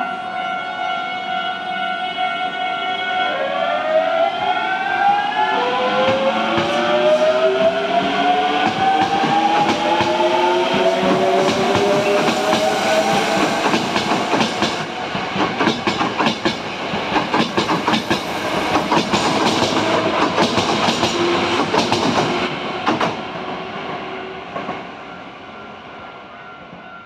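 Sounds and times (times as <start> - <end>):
train wheels clattering over rail joints: 8.6 - 23.2.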